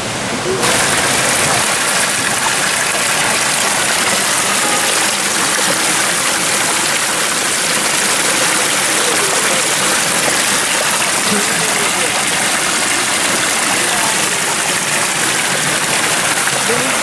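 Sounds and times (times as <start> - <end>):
water splashing into stone channel: 0.4 - 17.0.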